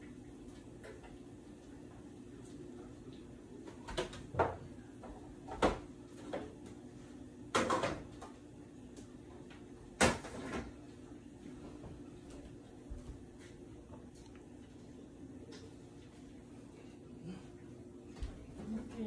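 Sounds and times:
low steady hum: 0.0 - 19.0
plates and pans knocking and clinking: 7.5 - 8.1.

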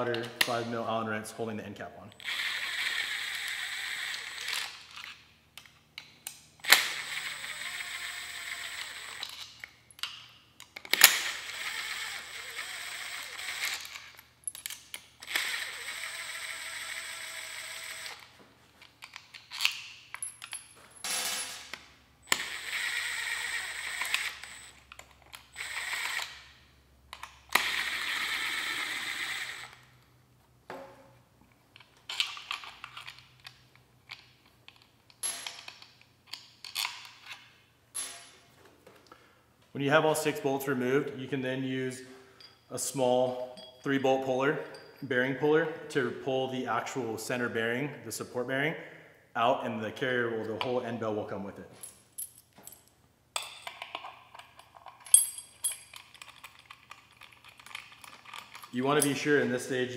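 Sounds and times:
cordless driver spinning: 2.2 - 5.2, 6.6 - 9.7, 10.8 - 14.3, 15.1 - 18.3, 22.3 - 26.6, 27.2 - 29.9.

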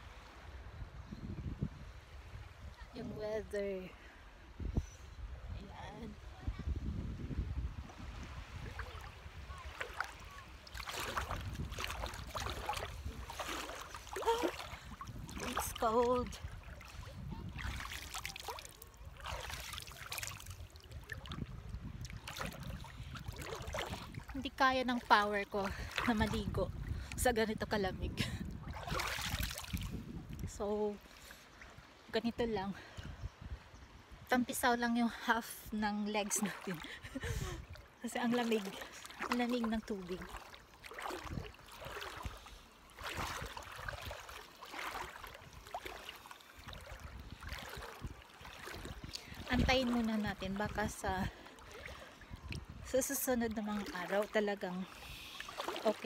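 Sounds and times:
wind rumbling on microphone: 0.0 - 31.0, 31.7 - 55.3
water splashing around wading legs: 7.9 - 27.8, 28.4 - 31.7, 36.2 - 56.0.

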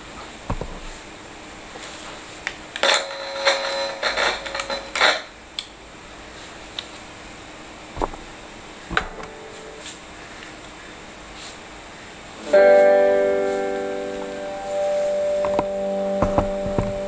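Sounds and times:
faint steady hum: 0.0 - 17.0
clattering clicks and knocks: 2.8 - 5.3
ringing guitar string: 12.4 - 17.0
thump on guitar: 15.4 - 17.0.

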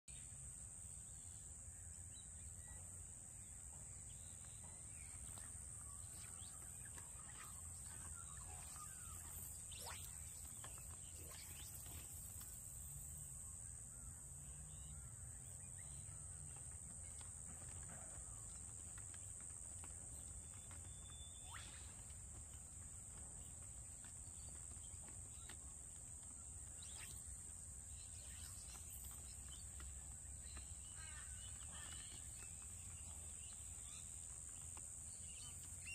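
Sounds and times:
high-pitched insect drone: 5.2 - 13.4.

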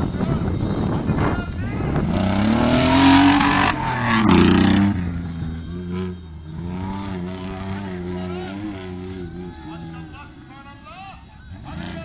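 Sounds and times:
engine revving hard: 2.0 - 8.9.

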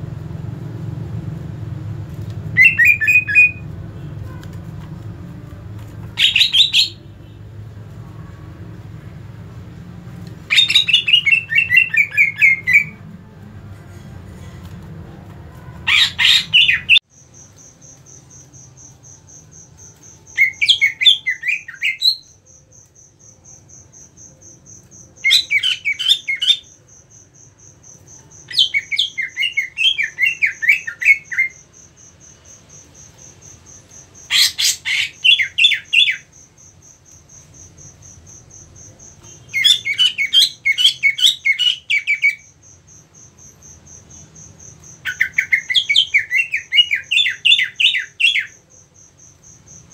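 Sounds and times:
bird chattering song: 2.5 - 4.4, 6.0 - 7.4, 10.4 - 13.0, 15.5 - 18.4, 19.0 - 22.6, 24.9 - 37.4, 38.8 - 43.0, 43.9 - 49.9.

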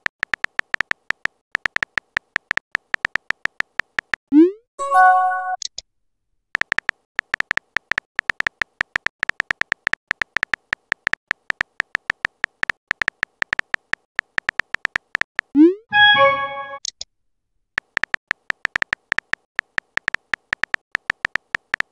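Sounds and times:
phone keyboard typing clicks: 0.0 - 4.2, 6.6 - 15.6, 17.8 - 21.9.

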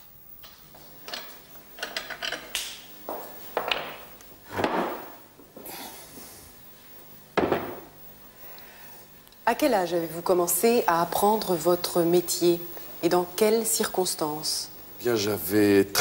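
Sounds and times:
wooden knocks and thuds: 3.6 - 5.2, 7.4 - 7.9.

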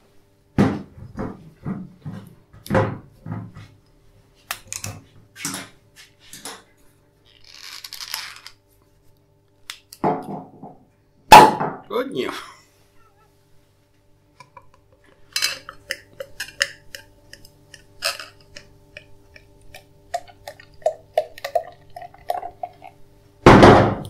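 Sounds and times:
wire and foil clicks and crinkles: 7.3 - 8.6, 14.5 - 20.7.

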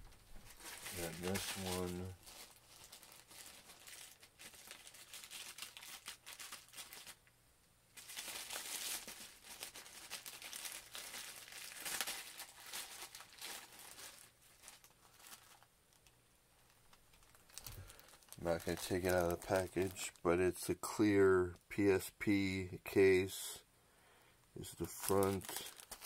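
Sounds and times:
plastic mailer bag crinkling: 0.0 - 7.3, 7.9 - 20.2, 24.7 - 26.0.

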